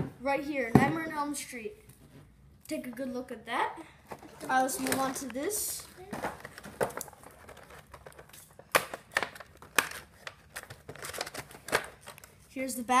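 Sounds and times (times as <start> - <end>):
packaging crinkling: 4.2 - 12.4.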